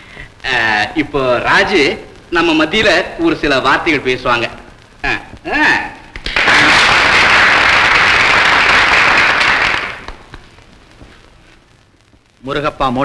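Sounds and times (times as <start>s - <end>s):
crowd applauding: 6.2s - 10.4s.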